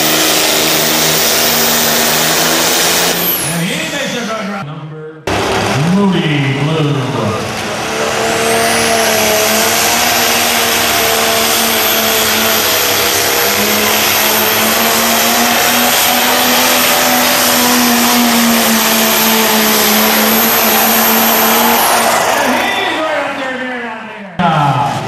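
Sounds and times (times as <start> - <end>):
tractor engine roaring under load: 0.0 - 4.6, 5.3 - 23.7.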